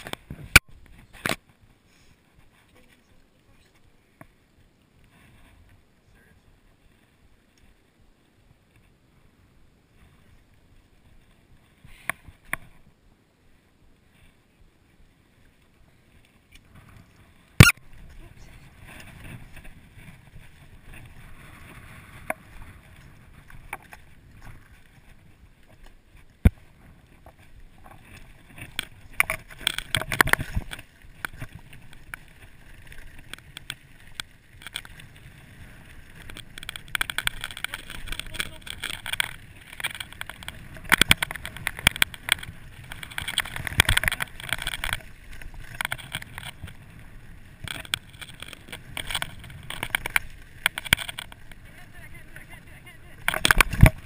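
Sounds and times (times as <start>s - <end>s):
tyres crunching on gravel: 17.1s - 54.0s
bike rattling and knocking: 26.4s - 46.9s, 47.5s - 51.7s, 53.0s - 54.0s.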